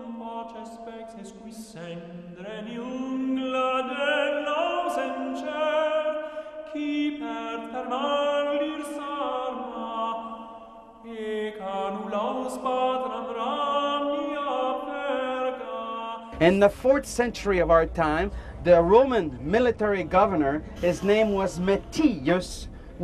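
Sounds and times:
voices singing long notes: 12.1 - 23.0.

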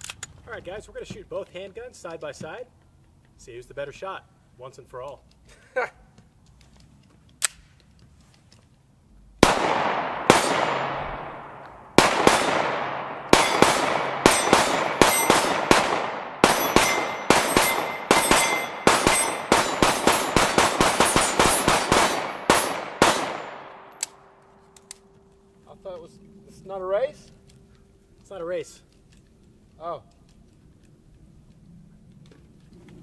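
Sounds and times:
pistol shots echoing: 9.4 - 24.3.

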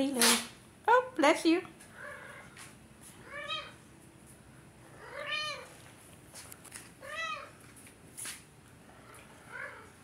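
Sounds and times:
cat meowing: 3.2 - 3.8, 5.0 - 5.7, 7.0 - 7.6.

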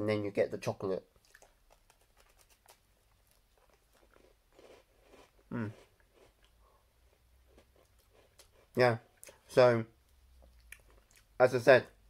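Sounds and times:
biscuit crunching and chewing: 1.1 - 9.5, 10.1 - 11.4.

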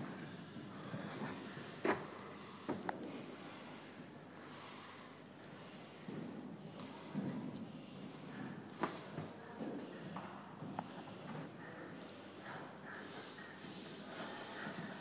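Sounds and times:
horse breathing puffs: 5.0 - 9.2, 10.6 - 15.0.

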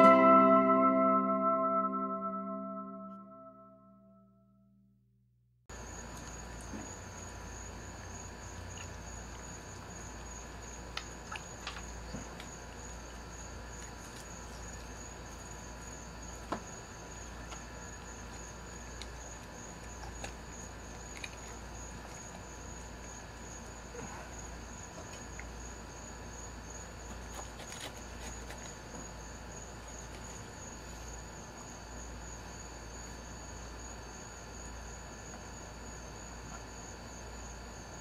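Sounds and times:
crickets chirping: 5.7 - 38.0.

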